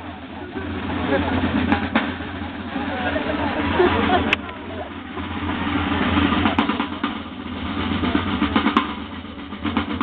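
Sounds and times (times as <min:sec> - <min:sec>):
accented drum strokes: 0:00.0 - 0:10.0
side drums rolling: 0:00.0 - 0:10.0.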